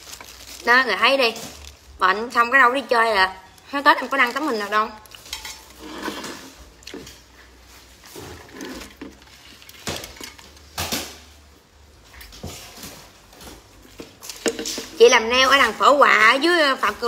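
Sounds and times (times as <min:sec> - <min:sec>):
plastic tumbler handling: 0:04.0 - 0:10.8.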